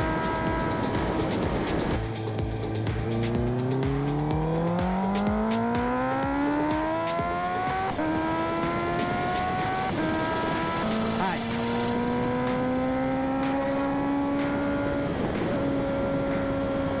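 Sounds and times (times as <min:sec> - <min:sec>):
wind noise: 0:00.0 - 0:03.1, 0:07.8 - 0:17.0
motorcycle engine accelerating: 0:00.0 - 0:17.0.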